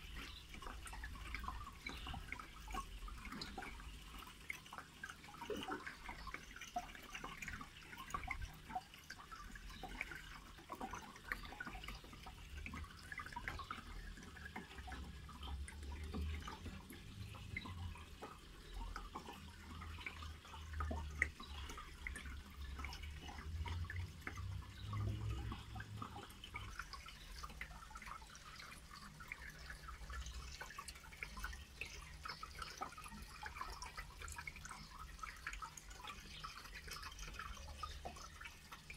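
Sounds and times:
water dripping and bubbling: 0.0s - 38.9s.

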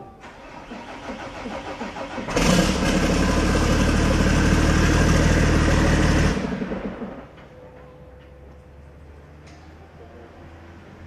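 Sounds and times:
diesel truck engine idling: 0.1s - 8.2s.

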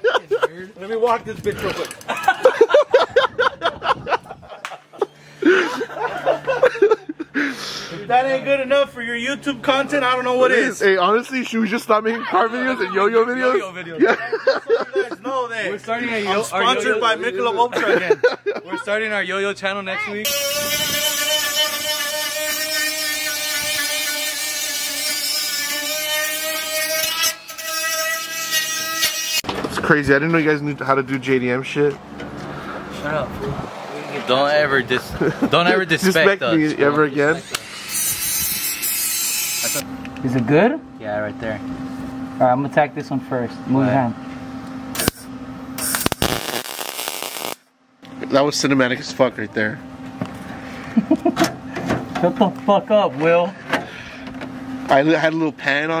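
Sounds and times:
men laughing: 0.0s - 1.0s, 1.7s - 8.1s, 11.9s - 19.2s, 34.9s - 37.6s, 50.5s - 51.9s
men exclaiming: 11.9s - 15.5s
metal being abraded: 20.3s - 29.5s, 37.5s - 39.8s, 45.0s - 47.6s
steady low hum: 29.5s - 56.0s.

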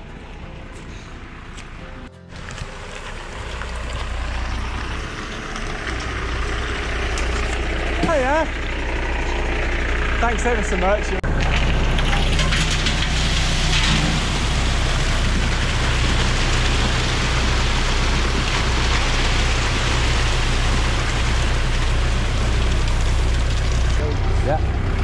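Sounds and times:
truck engine drone: 0.0s - 25.0s
wet concrete pouring down chute: 2.4s - 8.5s, 11.2s - 25.0s.

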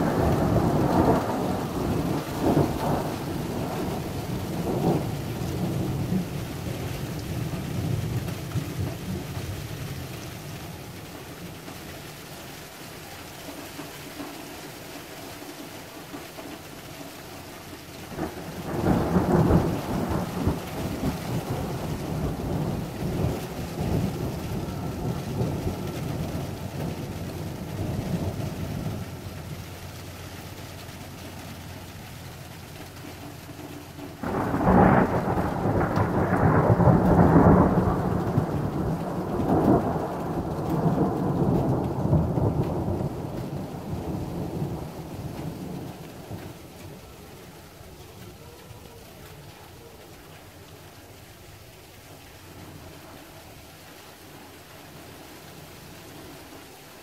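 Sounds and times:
thunder rolling: 0.0s - 9.2s, 18.1s - 29.8s, 34.1s - 48.5s.

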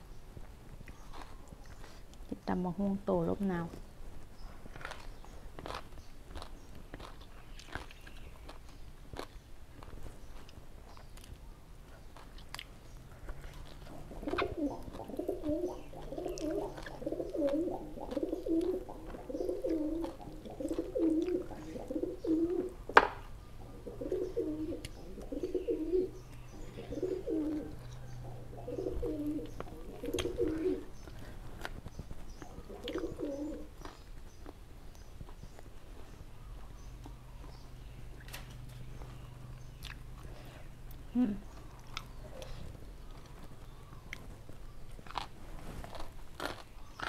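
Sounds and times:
dove cooing: 13.9s - 22.9s, 23.6s - 31.0s, 32.4s - 33.7s
eating clicks: 29.4s - 31.8s.

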